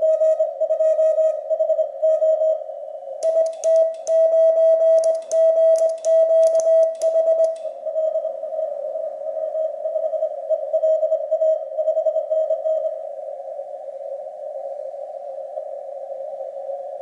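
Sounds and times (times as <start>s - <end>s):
morse paddle clicking: 3.2s - 4.2s, 5.0s - 7.6s
morse code beeps: 3.2s - 7.7s.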